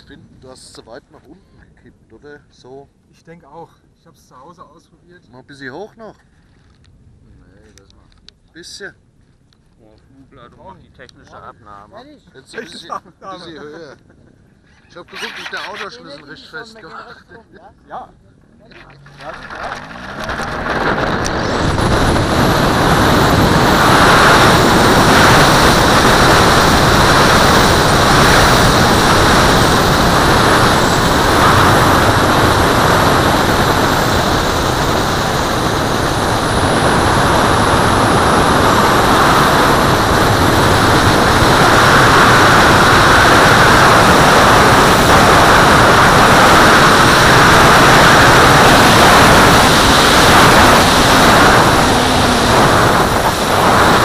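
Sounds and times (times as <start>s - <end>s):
wind noise over camera: 18.7s - 54.0s.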